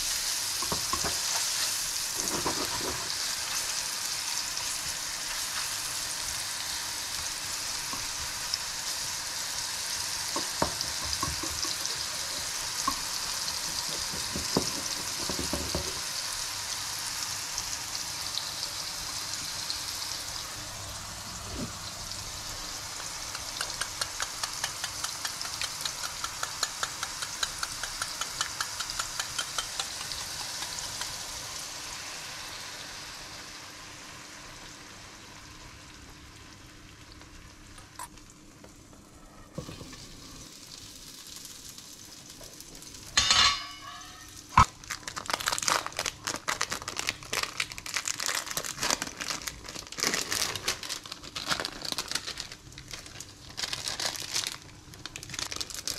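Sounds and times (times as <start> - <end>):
mushrooms sizzling in a pan: 0.0 - 38.4, 39.6 - 55.9
plastic wrapper crinkling: 44.6 - 55.9.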